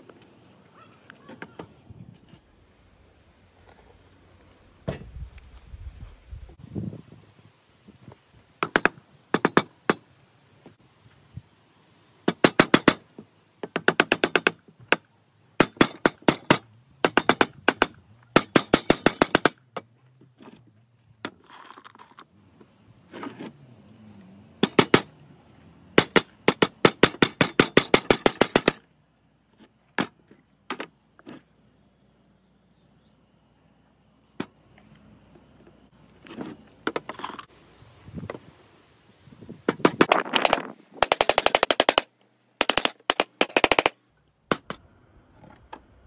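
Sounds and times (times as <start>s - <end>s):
hammer nailing wooden boards: 8.6s - 10.0s, 12.3s - 19.8s, 24.6s - 25.2s, 26.0s - 28.8s, 39.7s - 44.8s.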